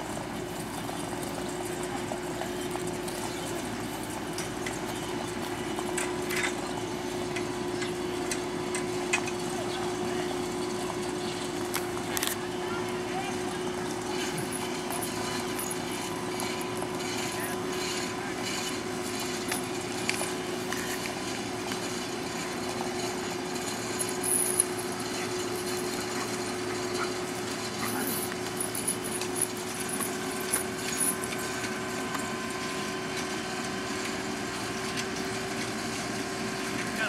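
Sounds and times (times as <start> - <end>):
tractor engine running under load: 0.0 - 37.0.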